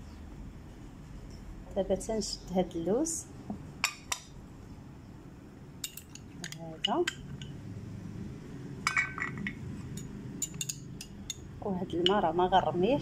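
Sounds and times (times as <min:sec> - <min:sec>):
metal spoon clinking on glass: 0:05.8 - 0:07.6, 0:08.8 - 0:12.3.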